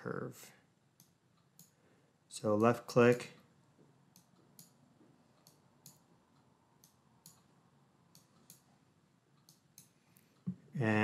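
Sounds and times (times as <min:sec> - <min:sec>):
computer mouse clicks: 0:01.0 - 0:01.8, 0:04.1 - 0:07.5, 0:08.1 - 0:08.7, 0:09.4 - 0:10.6.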